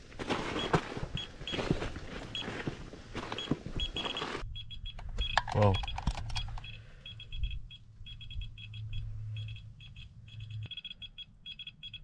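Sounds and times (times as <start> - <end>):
geiger counter beeping: 3.4 - 12.0.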